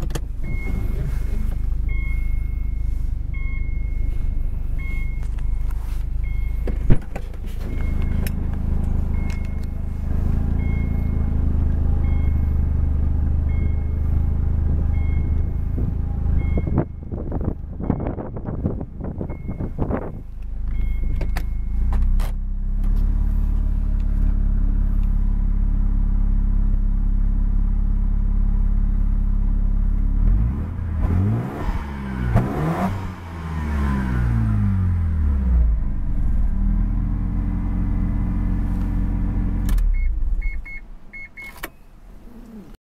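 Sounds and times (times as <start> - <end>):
rotary engine idling and revving: 0.0 - 42.8
short electronic beeps: 0.4 - 0.9, 1.8 - 6.7, 7.6 - 8.3, 9.1 - 9.8, 10.5 - 11.4, 13.5 - 14.1, 16.4 - 17.1, 19.3 - 21.9, 39.9 - 42.0.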